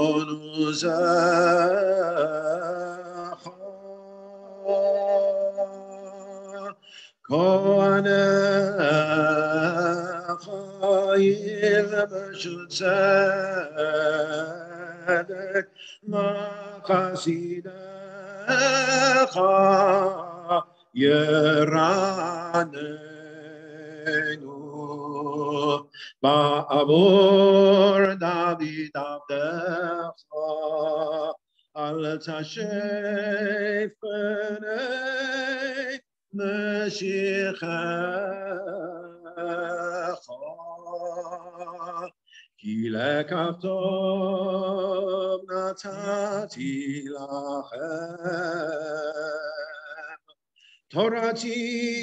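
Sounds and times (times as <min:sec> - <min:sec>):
man chanting liturgy: 0:00.0 - 0:34.2.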